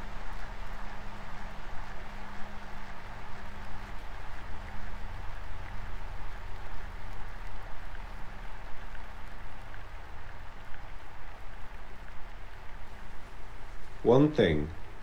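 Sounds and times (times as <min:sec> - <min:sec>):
steady hiss: 0:07.7 - 0:15.0.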